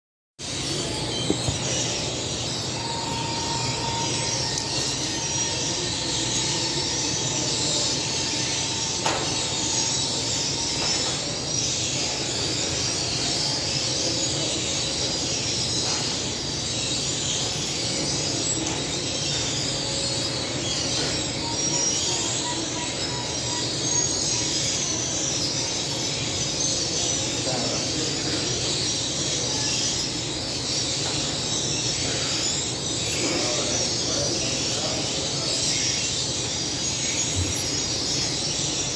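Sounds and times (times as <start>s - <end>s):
oven and extractor hood running: 0.4s - 38.9s.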